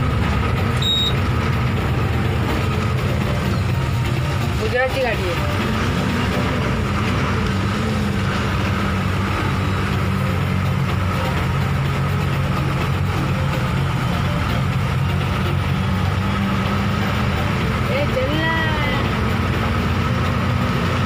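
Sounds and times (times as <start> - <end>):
diesel engine droning: 0.0 - 21.0.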